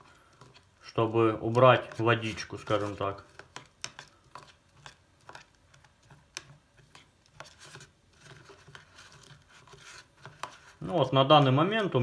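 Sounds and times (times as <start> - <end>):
spoon scraping and rustling sawdust: 0.0 - 12.0.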